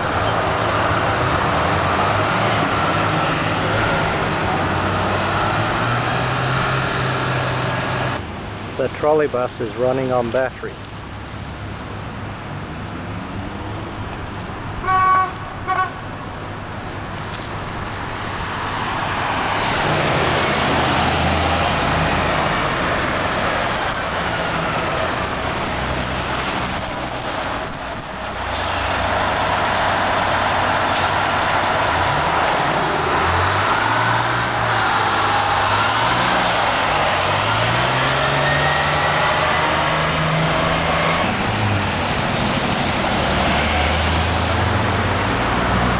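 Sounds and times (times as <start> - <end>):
diesel buses passing: 0.0 - 45.9
horn toots: 14.8 - 16.0.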